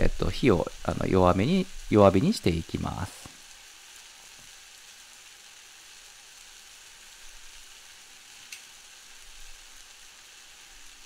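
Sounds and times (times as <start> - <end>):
onions sizzling in a pot: 0.0 - 11.0.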